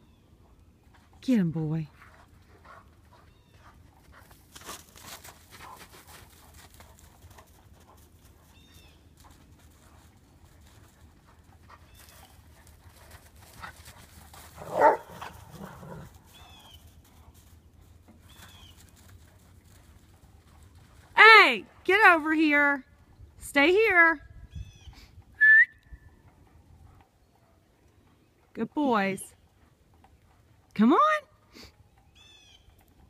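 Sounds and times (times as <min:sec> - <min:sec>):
dog barking: 0:14.6 - 0:15.8.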